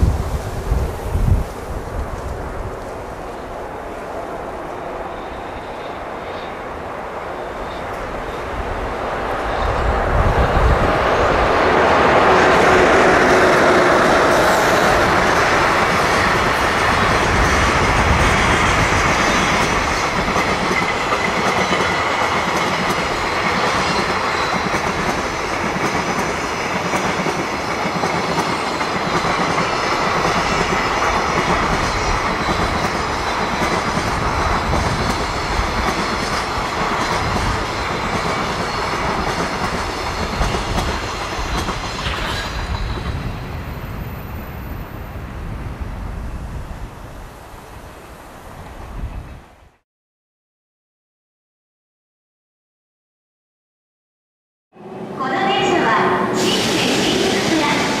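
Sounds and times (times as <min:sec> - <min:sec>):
electric locomotive passing: 0:00.0 - 0:49.7, 0:54.8 - 0:58.0.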